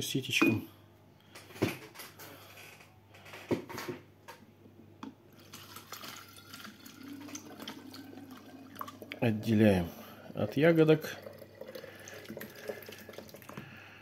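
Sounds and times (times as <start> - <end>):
liquid trickling into glass jar: 5.3 - 13.7.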